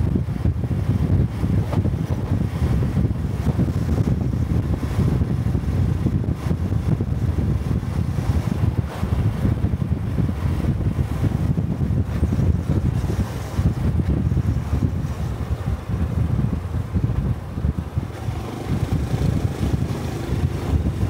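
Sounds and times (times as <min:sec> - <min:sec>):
motorcycle engine and exhaust: 0:00.0 - 0:21.0
wind buffeting microphone: 0:00.0 - 0:21.0.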